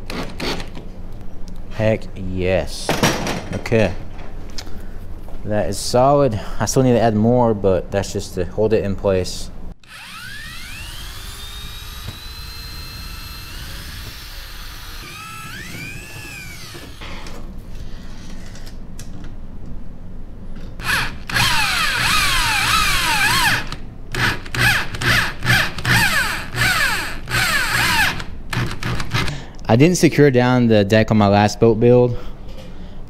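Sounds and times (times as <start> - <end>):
drill stop-start bursts: 9.8 - 17.0, 20.8 - 28.3
power drill motor whine: 9.8 - 17.0, 20.8 - 28.3.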